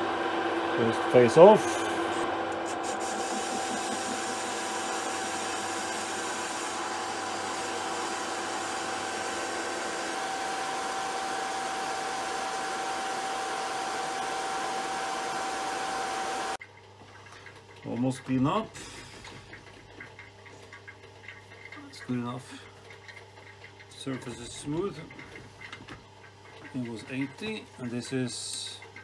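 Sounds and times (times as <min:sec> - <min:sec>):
metal lathe humming and whining: 0:00.0 - 0:16.6.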